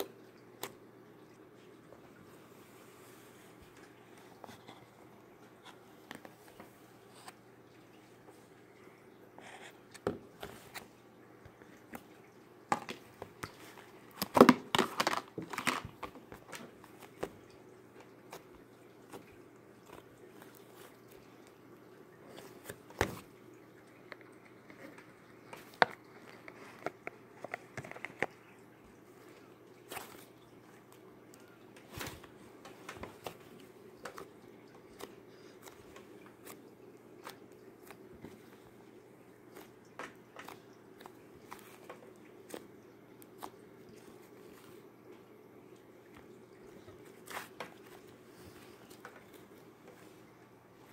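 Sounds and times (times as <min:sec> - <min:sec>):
hands squishing slime: 0:34.0 - 0:38.6, 0:39.4 - 0:44.8, 0:47.0 - 0:50.1.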